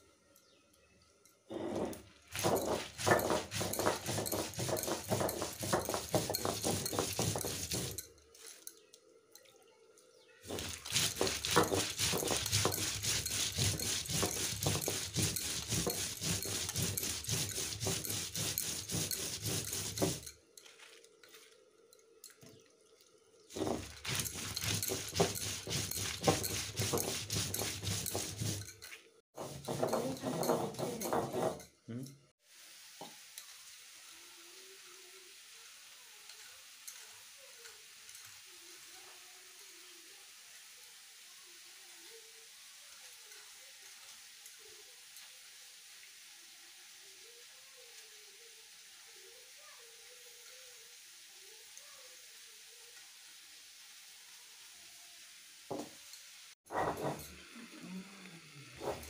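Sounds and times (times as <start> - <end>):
stone grinding on stone: 1.5 - 8.0, 10.5 - 20.8, 23.5 - 31.7, 56.7 - 57.4, 58.8 - 59.0.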